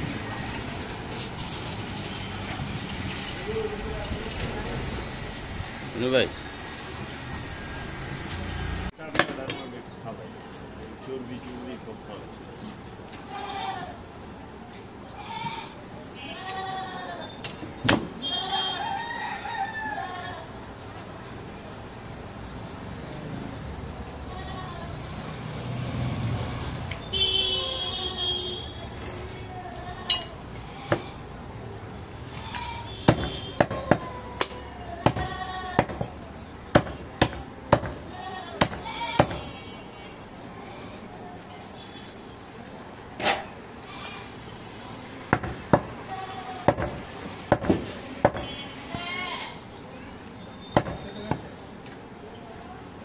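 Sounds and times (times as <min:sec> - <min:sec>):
goats bleating: 0:15.2 - 0:17.3, 0:34.7 - 0:35.9, 0:38.1 - 0:39.7, 0:48.8 - 0:49.6
cleaver chopping on wooden block: 0:36.7 - 0:38.0, 0:46.7 - 0:48.5.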